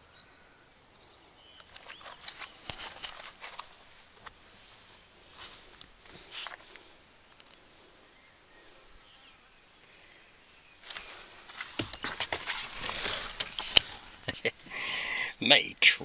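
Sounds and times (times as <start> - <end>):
background hiss: 0.0 - 16.0
camera handling rustles and clicks: 1.6 - 4.4, 5.8 - 7.6, 10.8 - 14.0.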